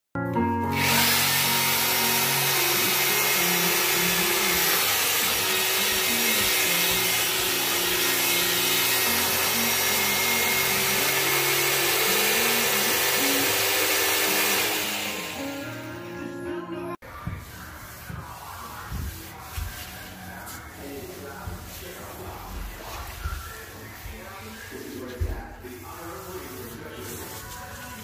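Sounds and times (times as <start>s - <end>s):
background music: 0.2s - 28.0s
drill mixing mortar in bucket: 0.7s - 15.8s.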